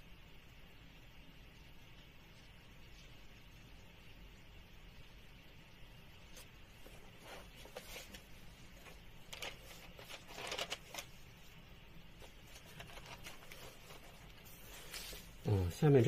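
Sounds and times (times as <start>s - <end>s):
paper sliding across desk: 13.3s - 15.4s.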